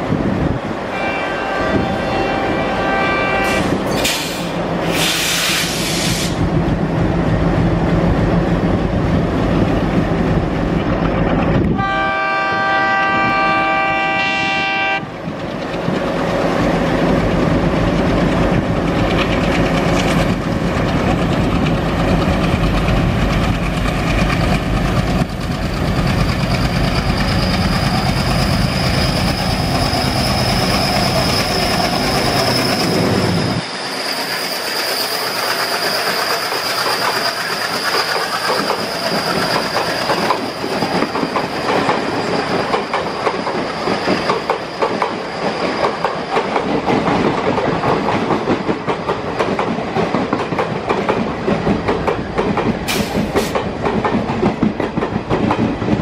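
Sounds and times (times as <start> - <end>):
diesel locomotive droning: 0.0 - 47.2
locomotive horn blast: 0.9 - 3.8, 11.8 - 15.1
train wheels and brakes squealing: 2.1 - 6.5, 22.4 - 48.2, 52.9 - 53.8.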